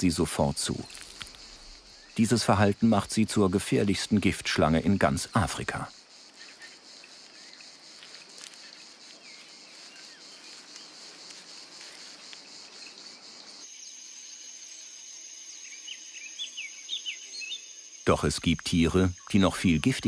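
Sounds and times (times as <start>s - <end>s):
high insect trill: 0.0s - 20.0s
insects chirping: 0.0s - 20.0s
bird chirps: 15.5s - 20.0s.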